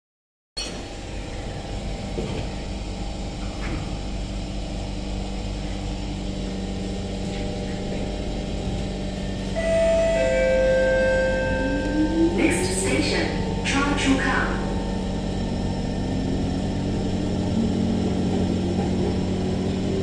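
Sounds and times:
train electrical hum: 0:00.6 - 0:20.0
two-note descending chime: 0:09.6 - 0:13.6.

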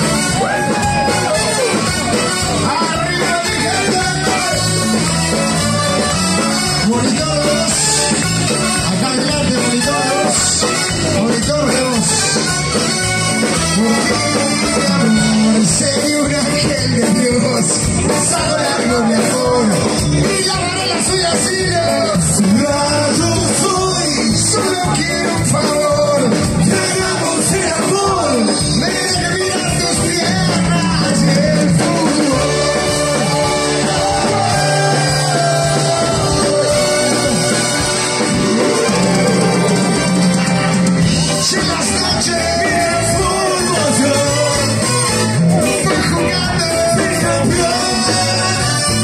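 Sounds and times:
live latin band through pa: 0:00.0 - 0:49.0
person singing: 0:13.4 - 0:49.0.

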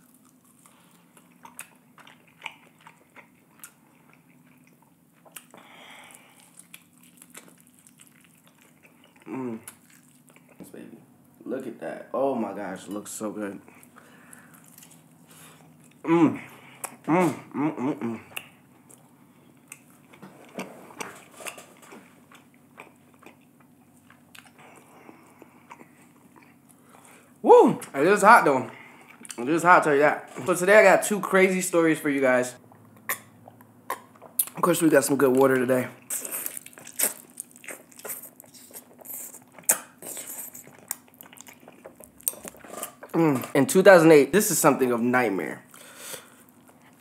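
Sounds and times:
chewing crunches: 0:00.0 - 0:10.6, 0:13.7 - 0:16.0, 0:36.0 - 0:43.6
wet mouth clicks: 0:38.0 - 0:40.4.

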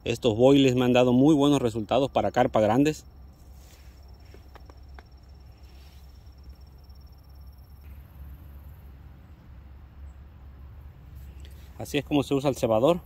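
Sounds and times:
insect trilling: 0:00.0 - 0:09.1.

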